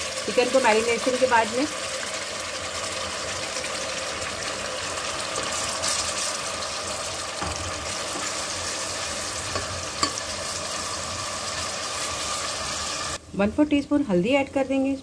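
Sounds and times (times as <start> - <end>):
onions sizzling in oil: 0.0 - 15.0
spatula stirring: 5.0 - 12.6.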